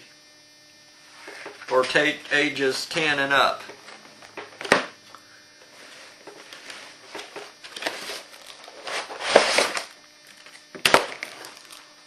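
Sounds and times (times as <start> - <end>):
plastic shrink-wrap crinkling: 7.4 - 11.9.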